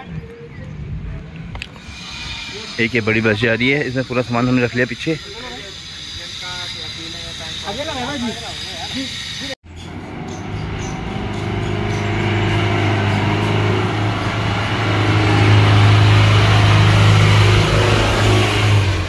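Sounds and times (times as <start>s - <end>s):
bus diesel engine passing: 8.4s - 19.0s.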